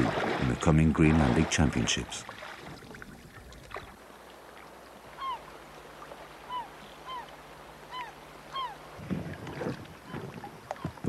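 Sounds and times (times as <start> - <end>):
seabird calling: 4.7 - 11.0.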